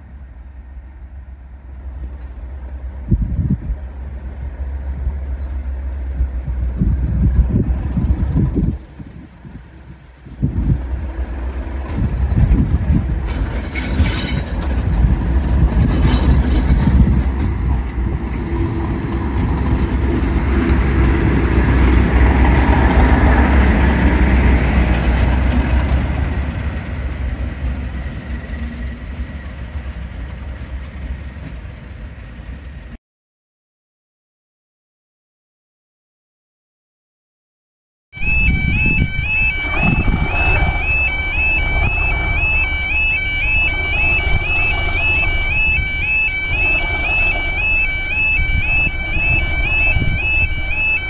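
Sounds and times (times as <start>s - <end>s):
diesel locomotive passing: 0.0s - 33.0s, 38.2s - 51.0s.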